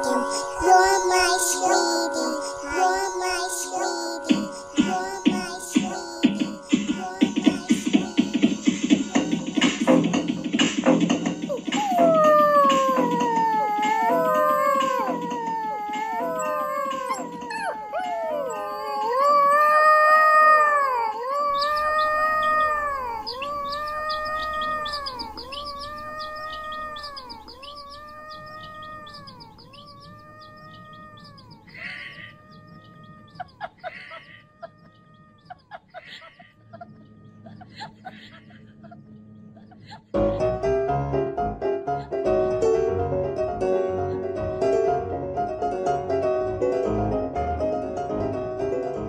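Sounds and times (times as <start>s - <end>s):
gliding animal calls: 11.4s - 40.1s.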